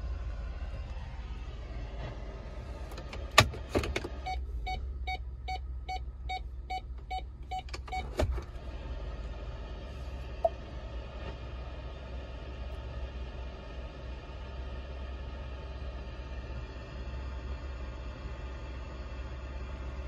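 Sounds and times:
dashboard warning chime beeping: 0:04.2 - 0:08.2.

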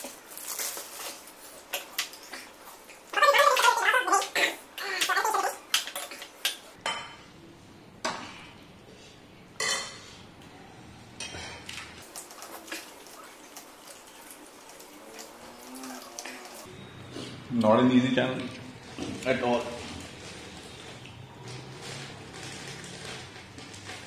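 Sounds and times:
crunching of crisp wafers: 0:00.0 - 0:02.2, 0:19.5 - 0:24.0.

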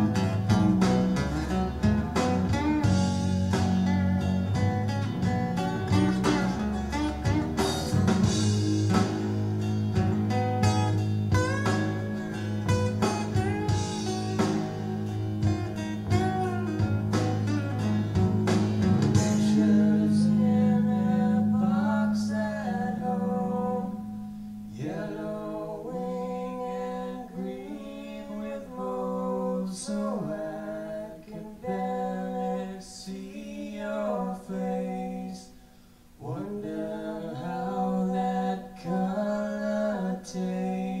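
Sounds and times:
strummed acoustic guitar: 0:00.0 - 0:28.6
person singing: 0:19.0 - 0:35.6, 0:36.2 - 0:41.0.

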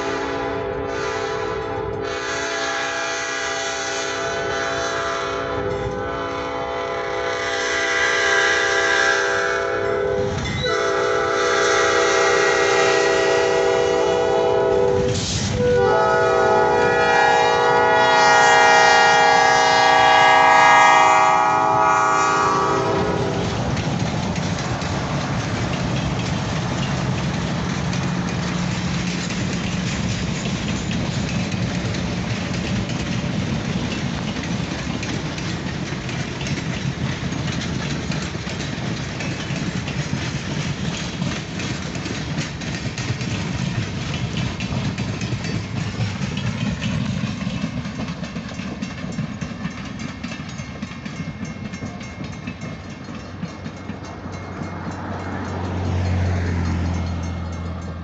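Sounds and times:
locomotive air horn blasts: 0:00.0 - 0:23.6
train rumbling: 0:00.0 - 0:58.0.

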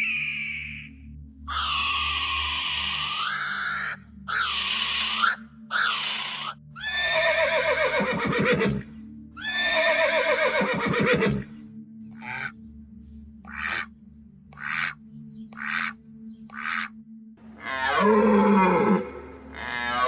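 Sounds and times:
short shrill calls: 0:00.0 - 0:00.9
horse whinnying: 0:04.3 - 0:11.5, 0:17.6 - 0:20.0.

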